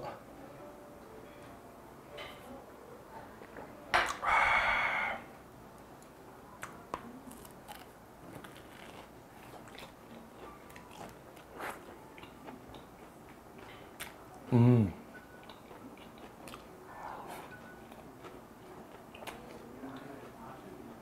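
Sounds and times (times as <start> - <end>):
loud breathy hiss: 4.2 - 5.3
biting and chewing crunchy food: 7.2 - 14.2, 15.4 - 16.7.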